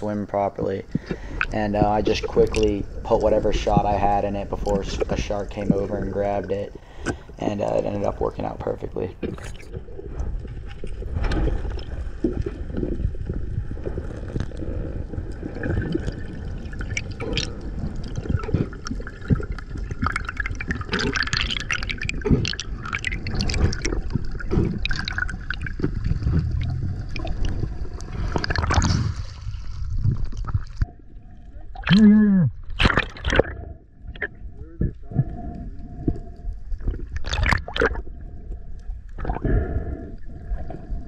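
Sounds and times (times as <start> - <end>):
low underwater rumble: 0.0 - 41.0
underwater rushing and gurgling: 0.0 - 41.0
bubble clicks: 31.8 - 33.5.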